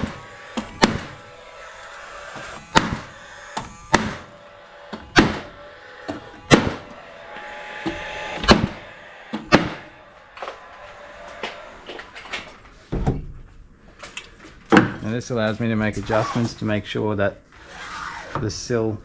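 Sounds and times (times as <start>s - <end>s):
nail gun firing: 0.0s - 1.2s, 2.7s - 4.3s, 4.9s - 5.5s, 6.1s - 6.8s, 8.4s - 9.8s.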